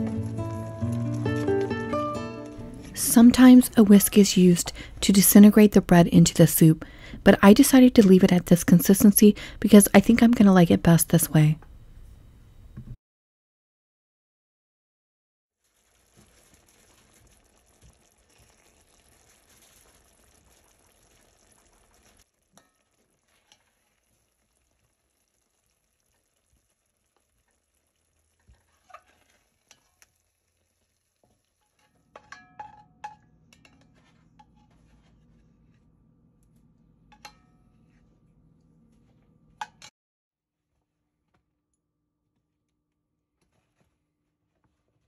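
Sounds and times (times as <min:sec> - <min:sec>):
soup simmering with faint sizzle: 0:00.0 - 0:05.8, 0:15.6 - 0:32.4
spoon scraping against pot: 0:28.4 - 0:30.1, 0:31.6 - 0:35.8.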